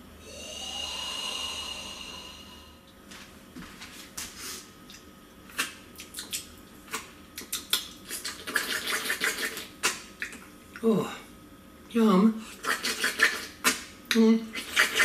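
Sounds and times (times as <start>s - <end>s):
licking and sucking popsicle: 4.9s - 10.5s, 12.6s - 13.9s.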